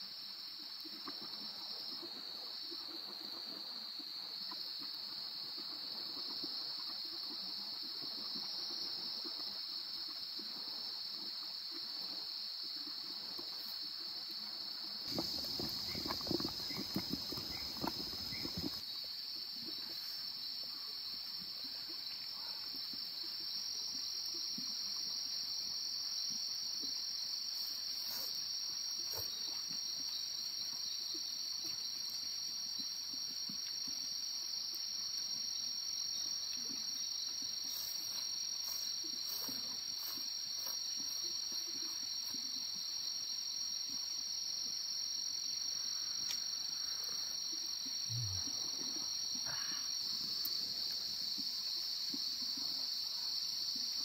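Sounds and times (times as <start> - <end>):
insects trilling: 0.0 - 54.0.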